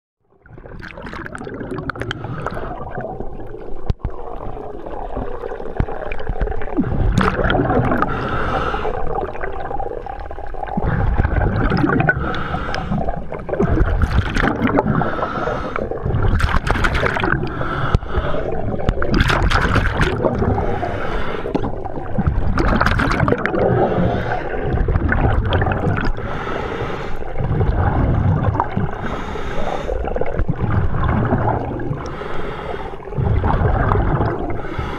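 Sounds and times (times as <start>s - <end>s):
low rumble of water: 0.2s - 34.9s
exhaled air bubbling: 0.3s - 34.9s
scuba regulator breathing: 1.9s - 3.1s, 6.8s - 9.2s, 10.8s - 16.4s, 17.1s - 19.0s, 20.2s - 22.1s, 23.4s - 24.9s, 26.0s - 30.5s, 31.8s - 34.9s.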